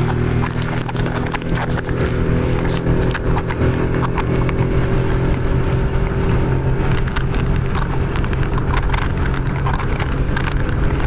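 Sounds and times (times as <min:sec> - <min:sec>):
water slapping against hull: 0:00.0 - 0:04.6
outboard motor running: 0:00.0 - 0:11.0.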